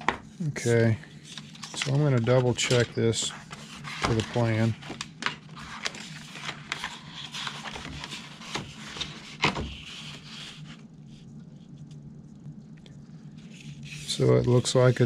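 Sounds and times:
plastic sheet rubbing over paper: 1.1s - 11.3s, 13.3s - 15.0s.

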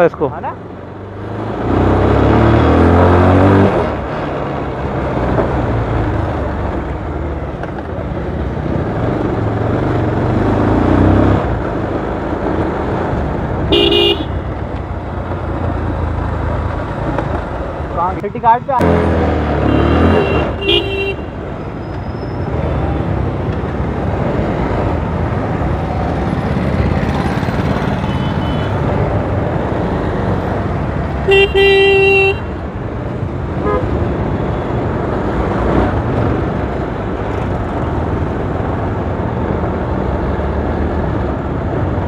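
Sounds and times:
vehicle horn tooting: 13.7s - 14.4s, 19.7s - 21.3s, 31.3s - 32.5s.

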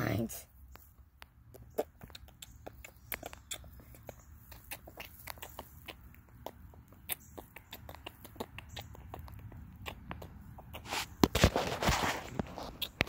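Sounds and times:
fabric rubbing on microphone: 10.8s - 13.0s.

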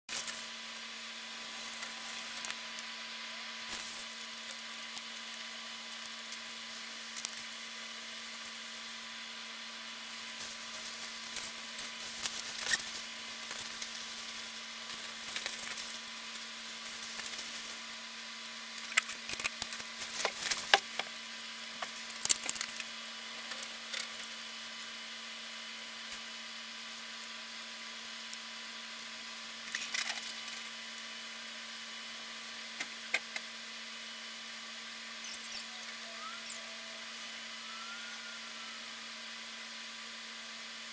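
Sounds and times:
electronic hiss: 0.1s - 40.9s
clicks and crackles: 1.4s - 7.6s, 10.4s - 17.8s, 18.7s - 21.2s, 21.8s - 24.9s, 27.8s - 31.1s.

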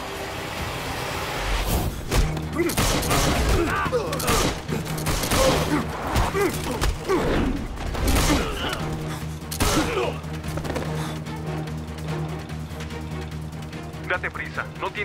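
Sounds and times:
dramatic score music: 0.0s - 15.0s.

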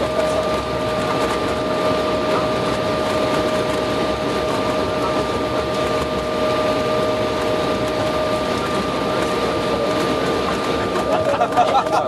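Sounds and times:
jet engines and airflow roaring: 0.0s - 12.0s
steady high whine: 0.0s - 12.0s.

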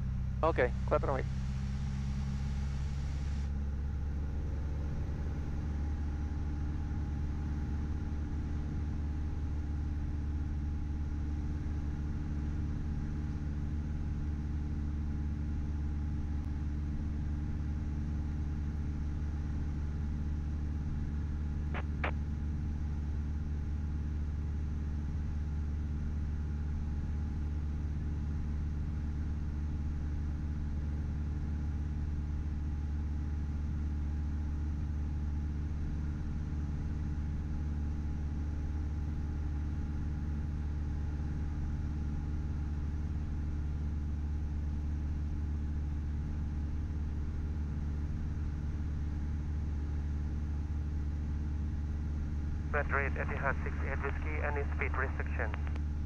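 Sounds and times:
aircraft engine and propeller droning: 0.8s - 7.7s.

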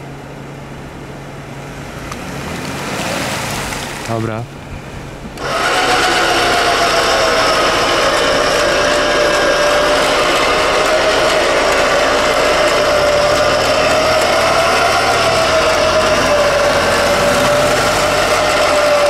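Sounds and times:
off-road vehicle mechanical whine: 0.0s - 19.0s.

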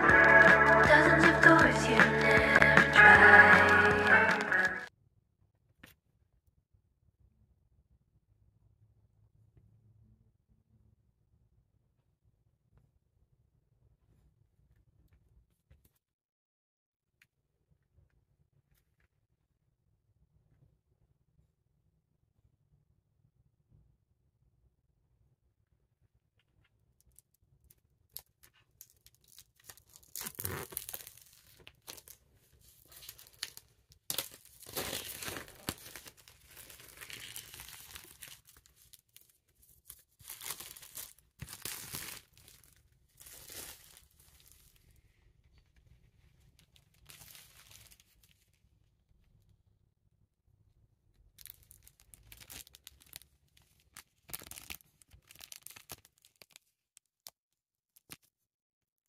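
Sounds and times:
plastic shrink wrap crinkling: 28.2s - 44.8s, 46.6s - 48.5s, 51.4s - 56.8s.

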